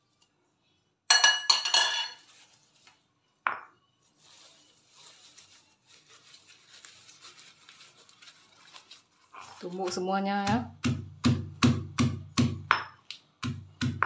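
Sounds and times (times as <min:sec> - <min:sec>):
spoon clinking against bowl: 0:01.1 - 0:02.2
leaves rustling: 0:04.2 - 0:09.9
stone pestle knock: 0:09.8 - 0:14.0.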